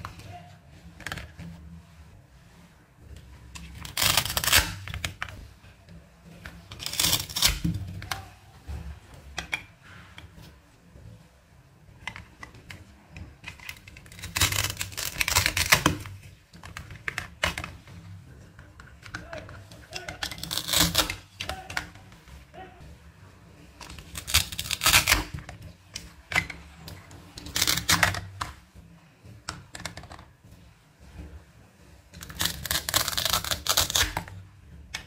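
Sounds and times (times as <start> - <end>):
velcro ripping: 3.8 - 4.8, 14.1 - 16.1, 20.3 - 21.7, 24.2 - 25.3, 32.2 - 34.2.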